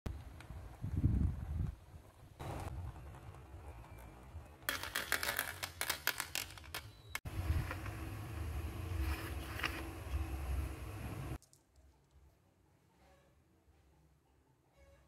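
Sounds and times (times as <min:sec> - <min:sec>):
marbles clattering in plastic: 0:04.7 - 0:07.2.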